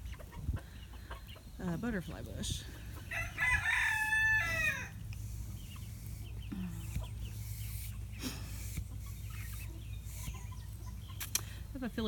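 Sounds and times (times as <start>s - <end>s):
chickens clucking softly: 0.0s - 1.6s
rooster crowing: 3.1s - 5.0s.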